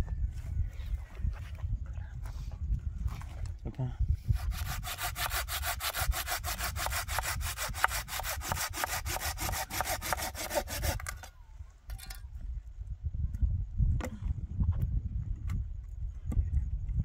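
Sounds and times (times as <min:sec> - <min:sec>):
hand saw cutting wood: 0:04.3 - 0:11.3.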